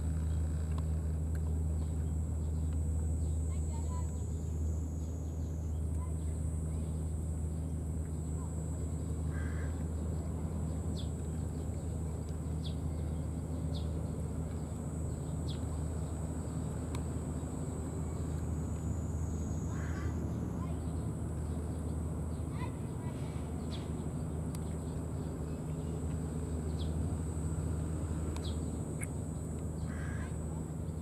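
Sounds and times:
low outdoor rumble: 0.0 - 31.0.

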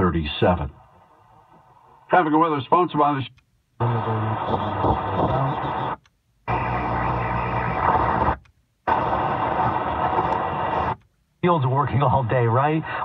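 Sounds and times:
faint radio signals: 3.8 - 11.0
radio static hiss: 3.8 - 11.0.

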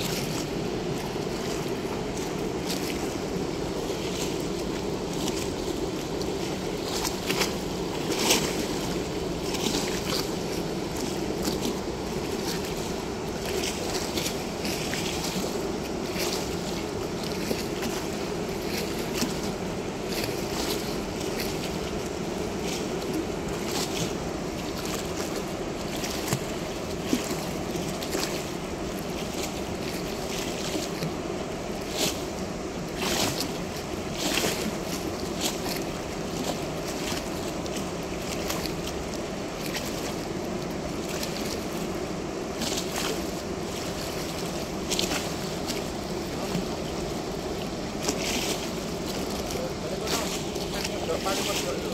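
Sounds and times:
water rushing through sluice gate: 0.0 - 51.9.

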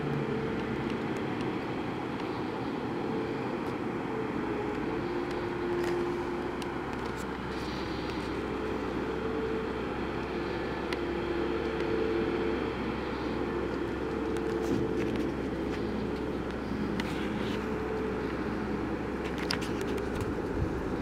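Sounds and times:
heavy machinery hum: 0.0 - 21.0
machinery whine shifting in pitch: 0.0 - 21.0.

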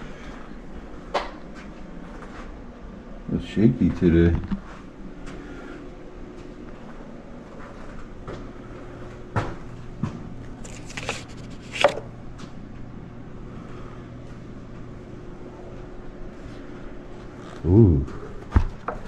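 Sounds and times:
faint steady hum: 0.0 - 19.0
paper rustle: 10.6 - 12.0.

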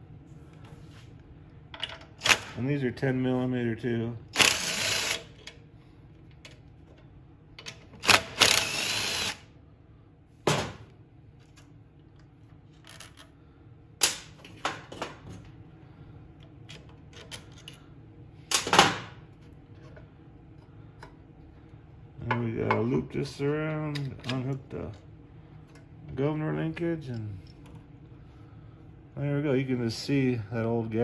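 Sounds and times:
cordless drill spinning: 4.4 - 5.4, 8.0 - 9.4
metal parts clicking and knocking: 12.7 - 13.3.

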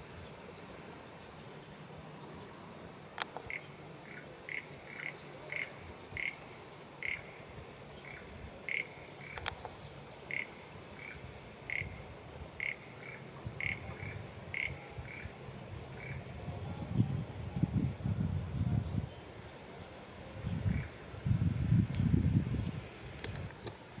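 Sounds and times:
short animal calls: 3.4 - 6.4, 10.3 - 12.0, 12.6 - 15.3.

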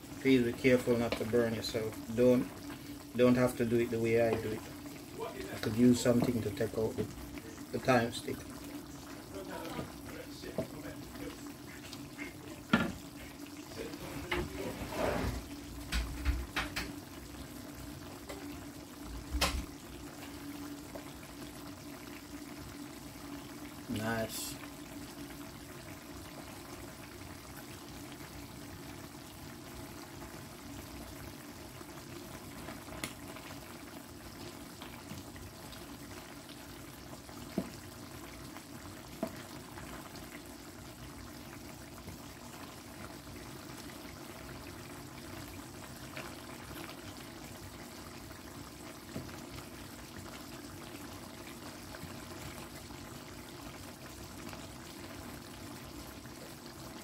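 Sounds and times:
curry bubbling in a pot: 0.0 - 57.0.

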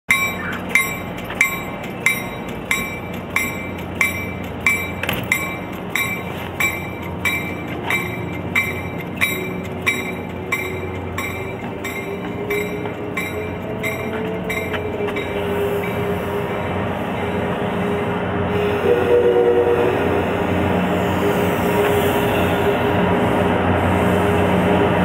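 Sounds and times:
bell striking: 0.1 - 15.4
diesel locomotive running: 0.1 - 25.0.

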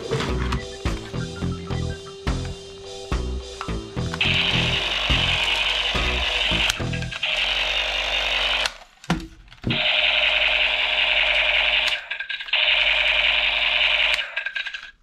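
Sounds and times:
toy rifle electronic buzzing: 4.2 - 8.9, 9.7 - 15.0.

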